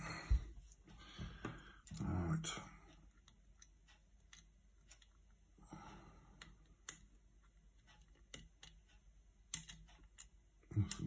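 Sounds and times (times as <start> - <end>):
metallic clicks of lock picking: 9.5 - 10.3.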